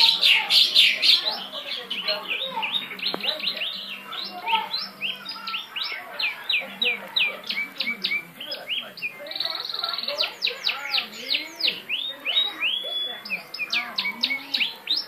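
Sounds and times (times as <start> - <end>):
buzzy bird trill: 0.0 - 15.0
songbird chirping: 0.0 - 15.0.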